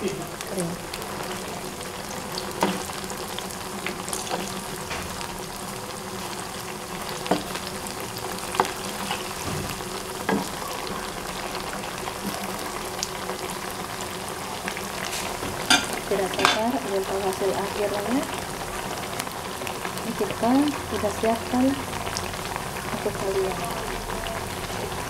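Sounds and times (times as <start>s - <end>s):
food deep-frying in oil: 0.0s - 25.0s
oil popping and crackling: 0.0s - 25.0s.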